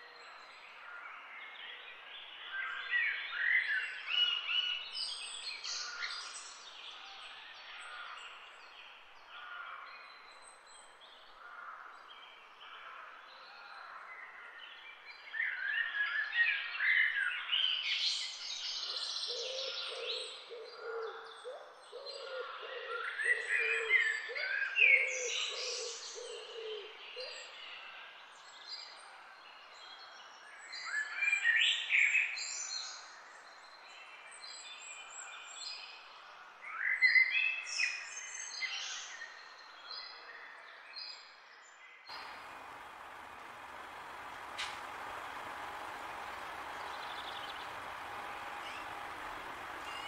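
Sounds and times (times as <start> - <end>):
birds singing and chirping: 42.1 - 50.0
low hooting call: 42.1 - 50.0.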